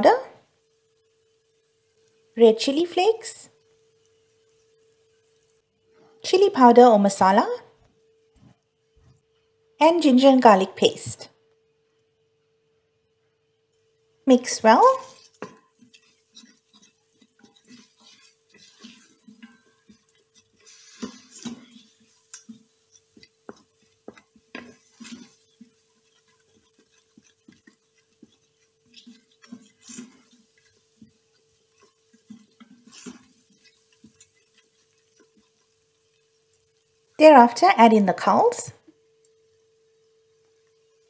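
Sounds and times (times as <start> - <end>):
paste frying in oil: 0.0 - 8.3, 13.7 - 41.0
faint steady hum: 0.0 - 41.0
wooden spoon scraping a pot: 14.6 - 36.8.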